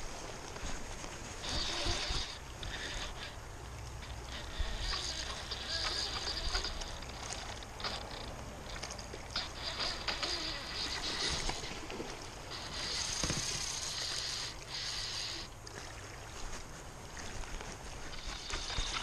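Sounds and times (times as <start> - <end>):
clicks and rubbing near microphone: 4.0 - 14.1, 17.4 - 19.0.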